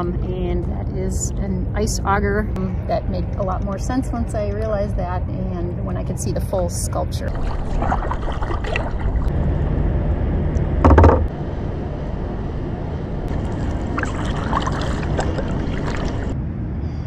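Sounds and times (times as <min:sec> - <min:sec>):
steady low rumble: 0:00.0 - 0:17.0
water splashing against kayak: 0:07.3 - 0:09.3, 0:13.3 - 0:16.4.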